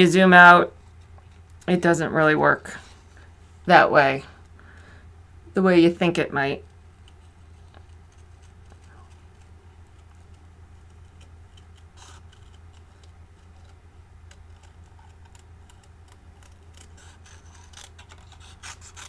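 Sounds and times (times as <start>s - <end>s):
steady low hum: 0.0s - 19.0s
scissors snipping cardstock: 7.8s - 19.0s.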